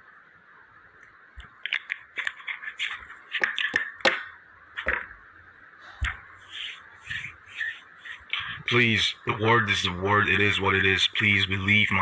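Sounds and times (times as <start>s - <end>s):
small object clicks and taps: 3.4s - 5.1s.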